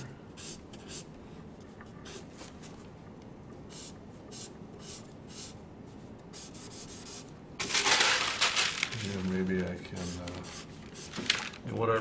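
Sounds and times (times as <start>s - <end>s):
marker scratching on paper: 0.0s - 1.1s, 2.0s - 2.3s, 3.7s - 7.3s, 10.0s - 11.2s.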